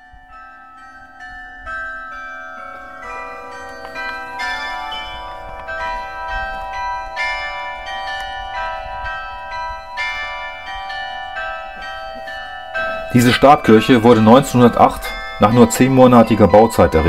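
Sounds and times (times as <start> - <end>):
carillon bells ringing: 0.0 - 17.0.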